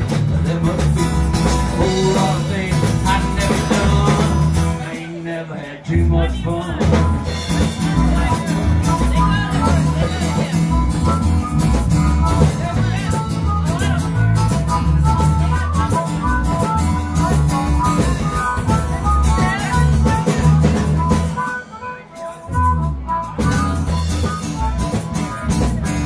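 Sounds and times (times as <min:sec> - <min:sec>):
acoustic guitar: 0:00.0 - 0:26.0
harmonica melodic runs: 0:07.0 - 0:26.0.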